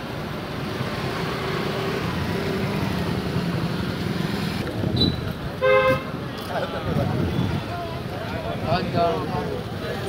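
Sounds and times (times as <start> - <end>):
motorcycle engines passing: 0.0 - 10.0
vehicle horn honk: 5.6 - 6.1.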